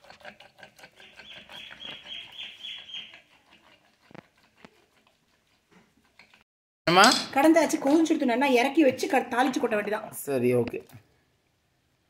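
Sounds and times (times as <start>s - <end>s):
wooden churner mashing greens: 0.0s - 6.4s.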